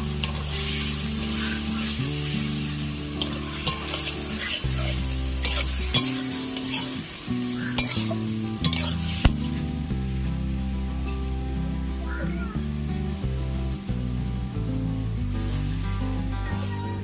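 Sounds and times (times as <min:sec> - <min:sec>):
food sizzling in a frying pan: 0:00.0 - 0:17.0
spatula scraping a metal pan: 0:03.2 - 0:07.0, 0:07.7 - 0:09.3.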